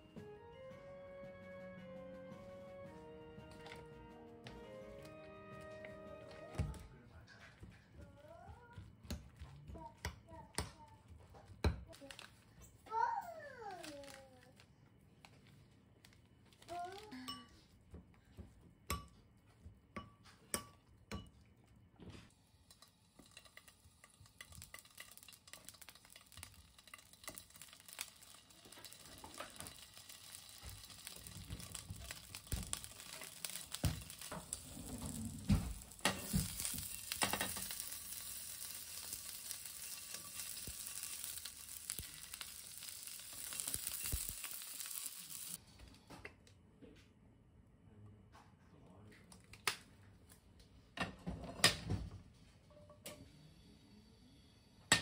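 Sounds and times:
sausages sizzling in frying pan: 22.3s - 45.6s
knocks in frying pan: 30.5s - 37.9s.

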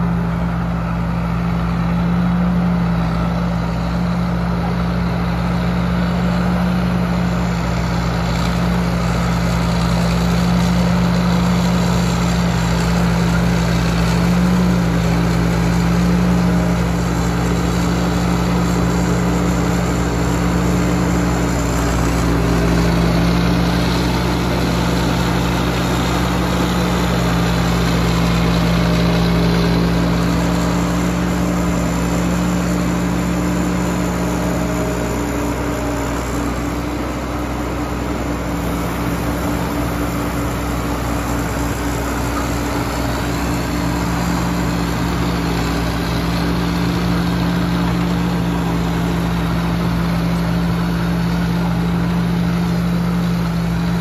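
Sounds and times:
combine harvester droning: 0.0s - 54.0s.

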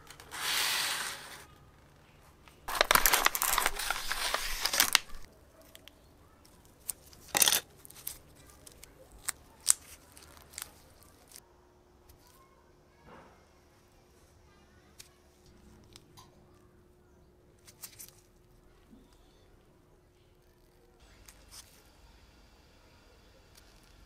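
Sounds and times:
plastic wrapper crinkling: 2.6s - 5.9s, 6.5s - 11.4s.

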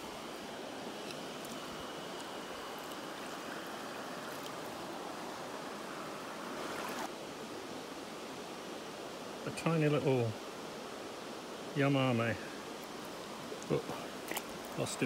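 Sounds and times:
river flowing over rocks: 0.0s - 7.4s.

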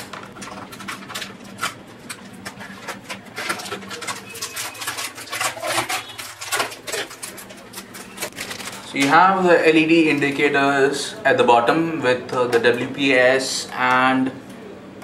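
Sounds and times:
plastic film crackling: 0.0s - 10.5s.

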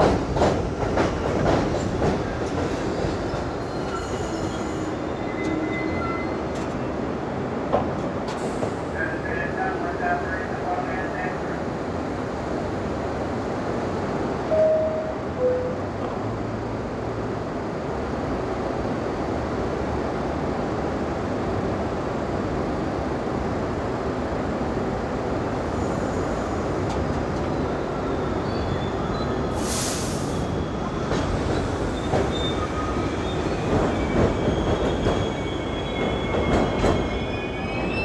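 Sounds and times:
subway train rumbling: 0.0s - 38.0s
train wheels squealing: 3.6s - 6.7s, 27.6s - 38.0s
short hiss: 29.6s - 30.5s.

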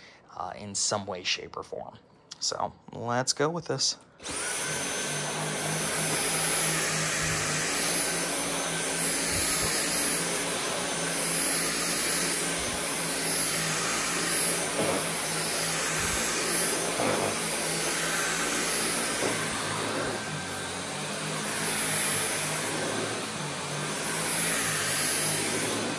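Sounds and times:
cordless vacuum running: 4.2s - 25.9s
high motor whine: 4.2s - 25.9s.

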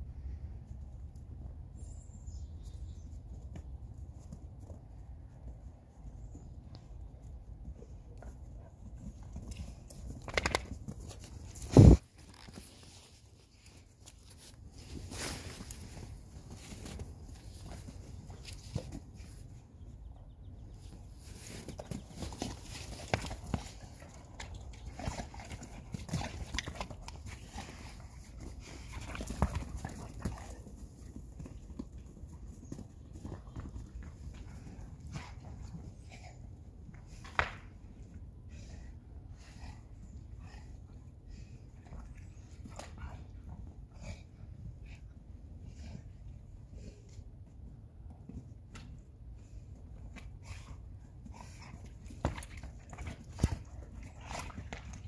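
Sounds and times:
dog bumping into camera: 10.2s - 10.8s
dogs scuffling in snow: 11.0s - 19.4s.

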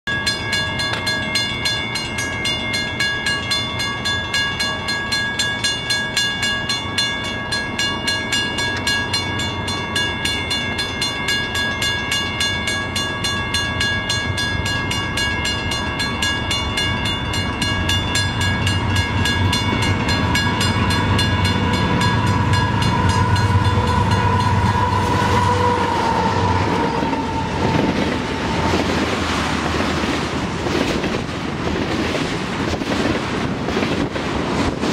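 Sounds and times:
crossing bell clanging: 0.0s - 32.8s
diesel locomotive engine rumble: 0.1s - 34.9s.

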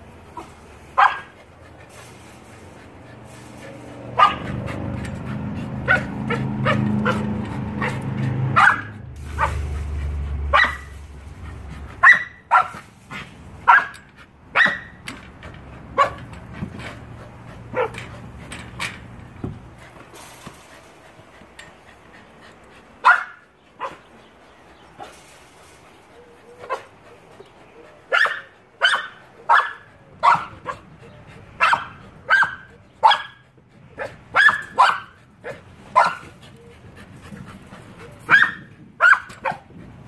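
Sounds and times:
dog barking: 1.0s - 1.3s, 4.2s - 4.6s, 5.8s - 9.7s, 10.5s - 10.9s, 12.0s - 12.8s, 13.6s - 14.9s, 16.0s - 16.2s, 23.0s - 24.0s, 28.1s - 30.8s, 31.6s - 33.4s, 34.0s - 36.3s, 38.3s - 39.6s.

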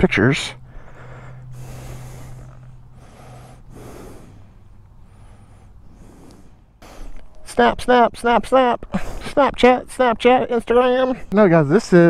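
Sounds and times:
person breathing heavily: 0.6s - 7.4s, 8.9s - 9.4s.

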